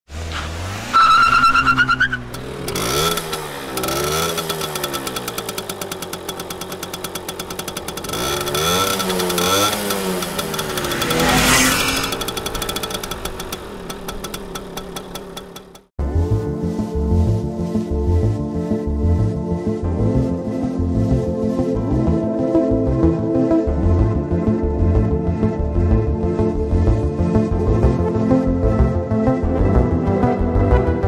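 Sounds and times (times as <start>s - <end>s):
engine pitch rising and falling: 0.1s - 16.4s
rapid ticking: 2.3s - 15.9s.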